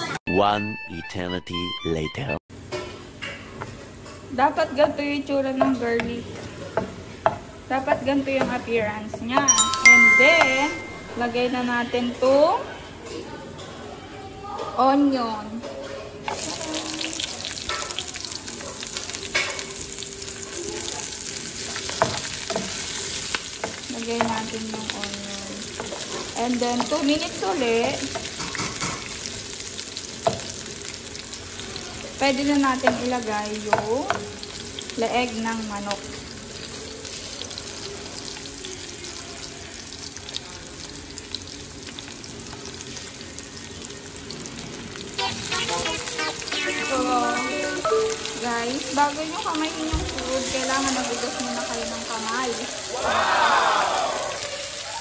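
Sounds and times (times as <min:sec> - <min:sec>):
onion sizzling in hot oil: 0:02.6 - 0:10.4, 0:16.2 - 0:55.0
loud sound: 0:45.2 - 0:48.5.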